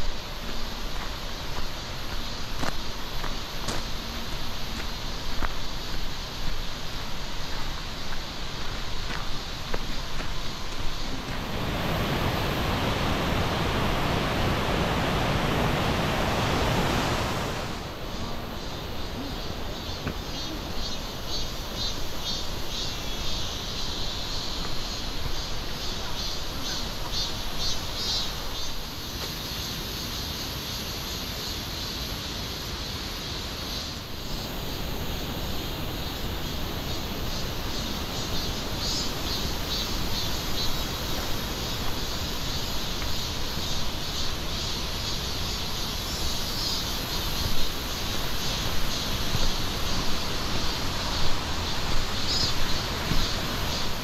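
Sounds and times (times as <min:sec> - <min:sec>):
insects chirping: 0:00.0 - 0:54.0
steady low rush: 0:10.5 - 0:20.0.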